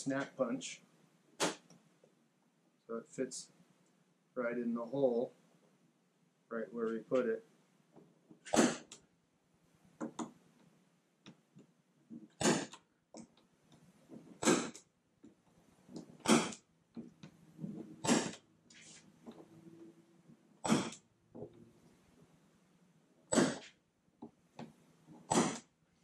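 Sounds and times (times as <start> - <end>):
snap punch firing: 1.4 - 1.7, 12.4 - 12.8, 14.4 - 14.8, 16.2 - 16.6, 18.0 - 18.4, 20.6 - 21.0, 23.3 - 23.7, 25.3 - 25.6.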